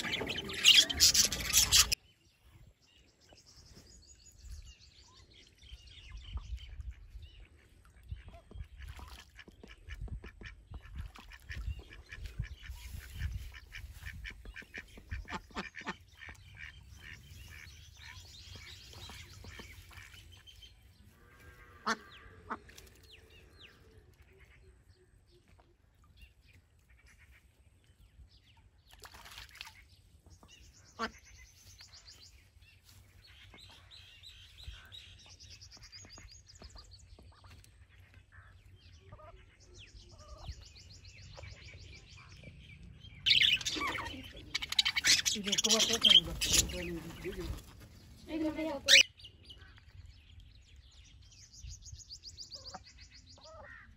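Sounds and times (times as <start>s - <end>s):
ducks quacking: 0.0s - 2.0s, 6.8s - 20.3s, 21.2s - 22.8s, 31.0s - 31.3s, 43.3s - 49.0s.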